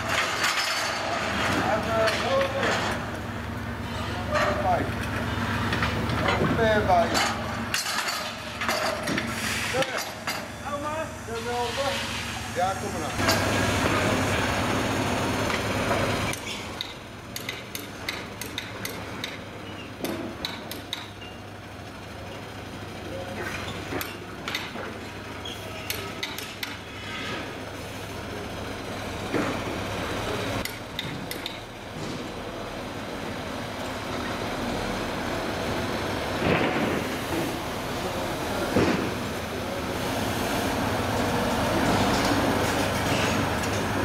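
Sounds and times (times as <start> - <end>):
truck engine running: 12.3 - 24.5.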